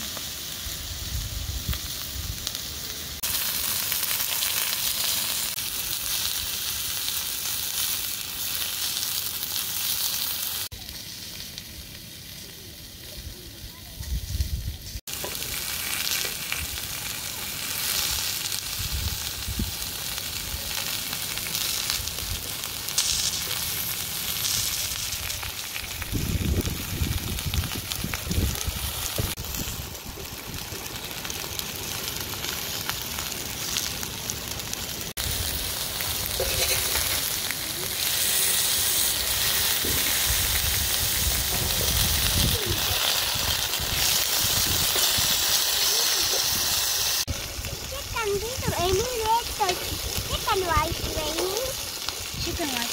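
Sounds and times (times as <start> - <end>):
steak sizzling: 0.0 - 52.9.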